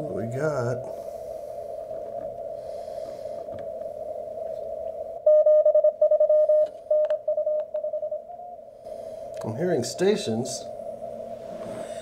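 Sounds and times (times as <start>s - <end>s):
radio band hiss: 0.0s - 2.3s
morse code beeps: 5.3s - 8.3s.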